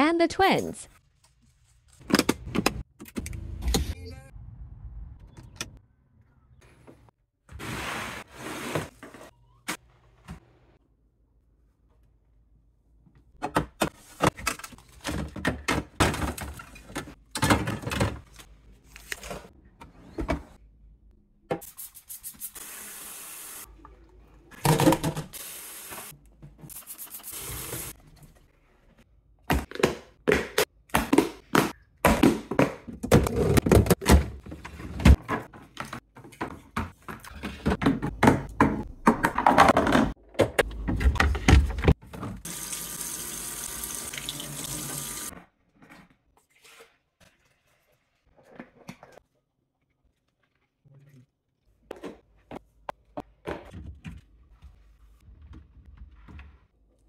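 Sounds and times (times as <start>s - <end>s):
kitchen faucet running: 42.5s - 45.3s.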